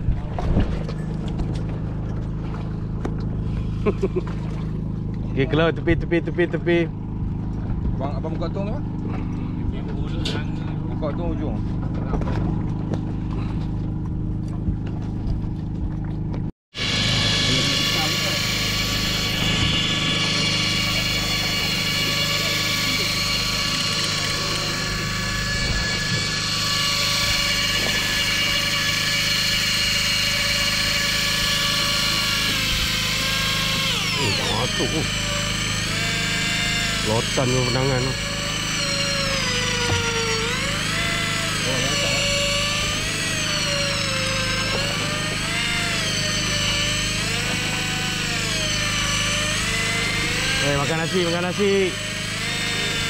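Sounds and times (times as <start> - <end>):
boat engine droning: 0.0 - 53.0
steady low hum: 0.0 - 53.0
fishing reel motor whining: 16.8 - 53.0.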